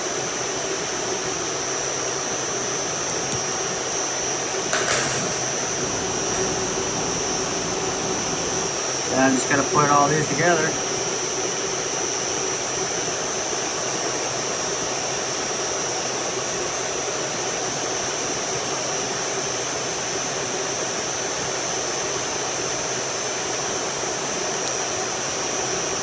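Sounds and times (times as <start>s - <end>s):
high-pitched whine: 0.0s - 17.3s
air-conditioning fans rushing: 0.0s - 26.0s.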